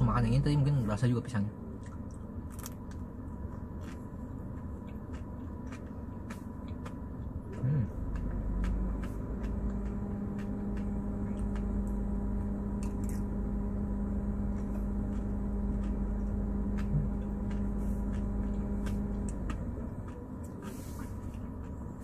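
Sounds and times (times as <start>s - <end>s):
machine hum with low rumble: 0.0s - 22.0s.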